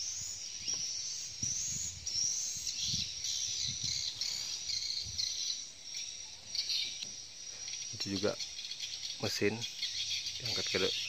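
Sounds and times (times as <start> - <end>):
birds and insects chirping: 0.0 - 11.0.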